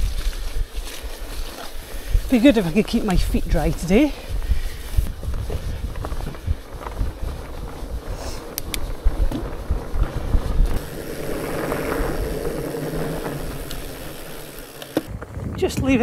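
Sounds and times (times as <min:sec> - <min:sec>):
wind on microphone: 0:00.0 - 0:14.4, 0:15.0 - 0:16.0
bike knocks and rattles: 0:05.2 - 0:16.0
tyres rushing: 0:07.4 - 0:15.3.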